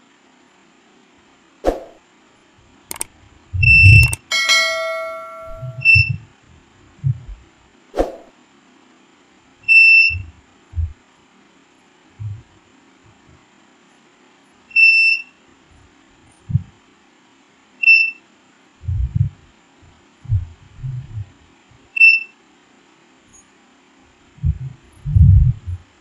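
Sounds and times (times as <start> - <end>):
digital clock beeping: 2.9 - 6.1
dull low thumps: 3.6 - 4.2, 12.2 - 12.5, 16.4 - 16.7, 18.8 - 19.5, 20.2 - 21.4, 24.4 - 25.8.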